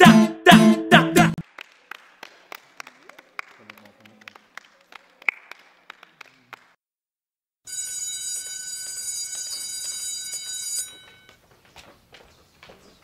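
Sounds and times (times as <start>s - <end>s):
hands clapping: 1.2s - 6.8s
electric school bell ringing: 7.7s - 11.4s.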